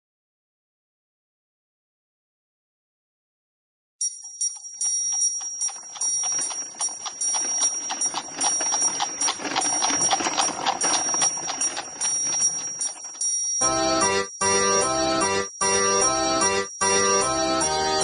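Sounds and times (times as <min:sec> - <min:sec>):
clock ticking: 0:04.0 - 0:18.0
steady high ringing tone: 0:04.0 - 0:18.0.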